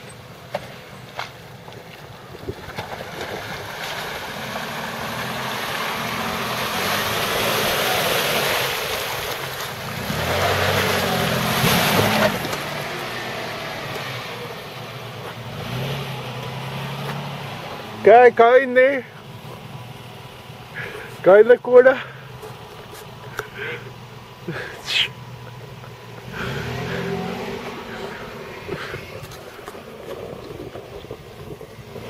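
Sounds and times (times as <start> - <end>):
car engine under load: 0.0 - 32.0
tyres splashing through water: 1.1 - 18.6.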